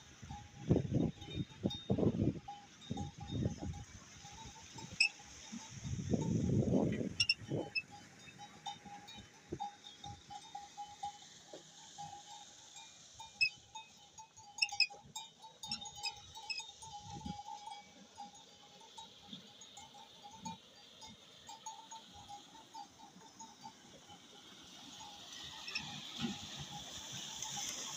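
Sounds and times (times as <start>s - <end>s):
light metallic clinks: 1.0s - 27.9s
rhythmic metal squeak: 4.7s - 6.4s, 7.0s - 11.1s, 13.4s - 17.8s, 25.5s - 27.7s.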